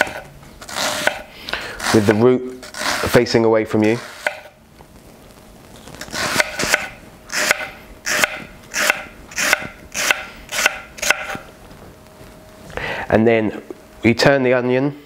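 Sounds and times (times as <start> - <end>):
knife slicing onion on board: 0.0 - 3.2, 3.9 - 4.5, 6.1 - 11.4.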